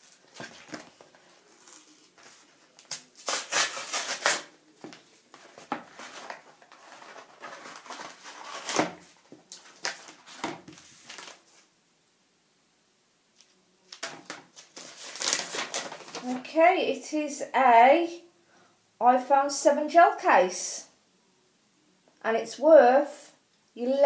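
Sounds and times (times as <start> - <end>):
paper crinkling: 0.0 - 11.7, 13.4 - 16.5
paper envelope tearing: 1.6 - 4.5, 5.6 - 9.0, 9.6 - 11.4, 13.9 - 16.4.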